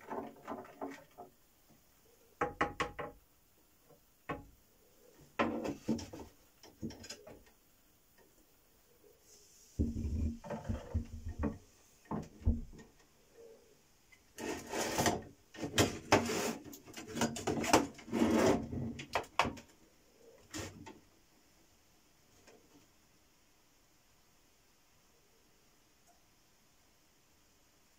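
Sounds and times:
rubbing and scraping with clicks: 0.0 - 1.8, 5.0 - 7.6, 9.8 - 13.2, 14.1 - 21.0.

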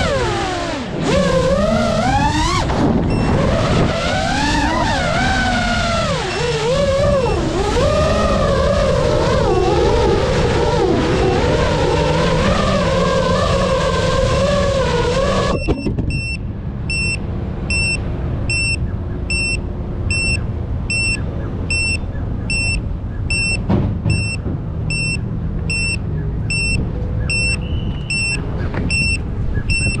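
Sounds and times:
short high beeps: 3.1 - 3.4, 15.5 - 30.0
steady low rumble: 15.0 - 30.0.

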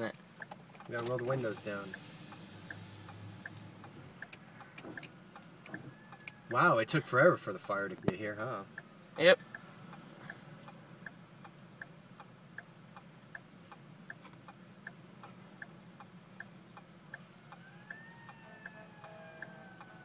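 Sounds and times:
low hum inside car: 0.0 - 20.0
turn signal relay clicking: 0.1 - 6.6.

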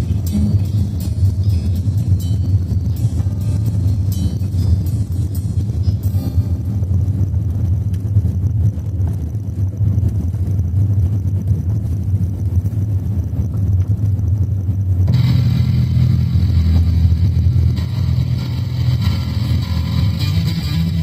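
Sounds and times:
guitar music: 0.0 - 7.4, 15.1 - 21.0
car engine and tyres on gravel: 0.1 - 20.2.

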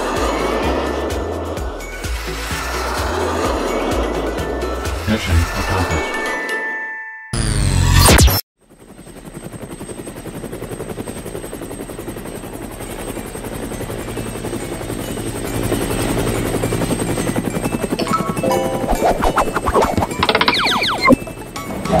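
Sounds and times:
helicopter rotor chop: 7.8 - 22.0.

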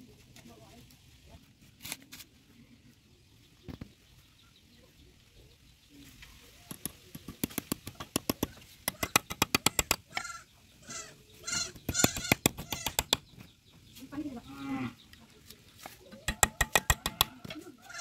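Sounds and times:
small hammer tapping steel rod: 6.7 - 10.0, 16.3 - 17.4
animal calls: 8.9 - 13.2, 16.1 - 18.0.

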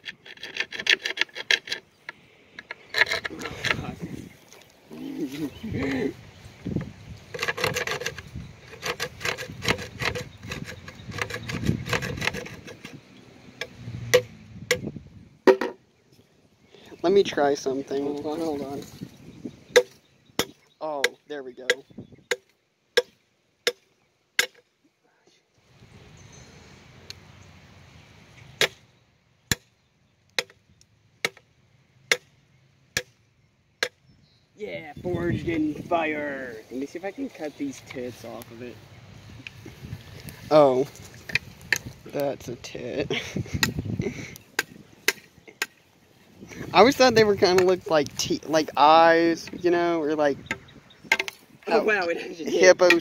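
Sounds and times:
knife sawing on wood: 0.0 - 1.8, 7.4 - 13.0
knife chopping into wood: 19.7 - 22.4, 24.4 - 24.6.

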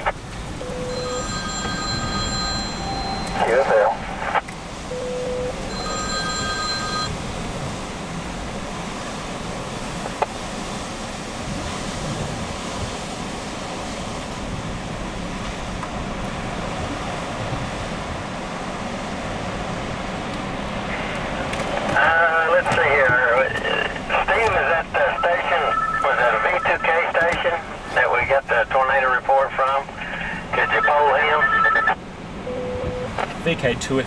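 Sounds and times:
short electronic tone: 0.6 - 4.2
wind rushing over microphone: 7.1 - 25.0.

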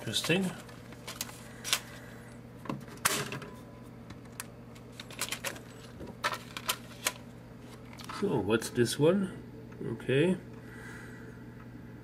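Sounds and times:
vinyl sheet clicks and crinkles: 0.0 - 2.0, 4.1 - 8.3
low steady hum: 0.0 - 12.0.

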